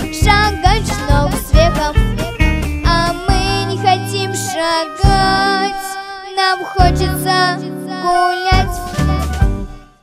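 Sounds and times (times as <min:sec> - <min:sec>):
low bass notes: 0:00.0 - 0:04.3
girl singing into a microphone: 0:00.0 - 0:09.4
instrumental accompaniment: 0:00.0 - 0:10.0.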